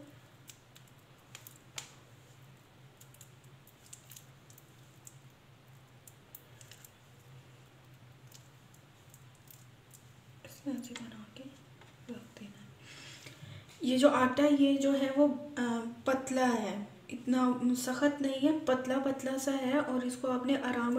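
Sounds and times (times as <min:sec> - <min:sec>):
hands squishing soft mixture: 0:00.0 - 0:15.2
low steady hum: 0:00.0 - 0:20.9.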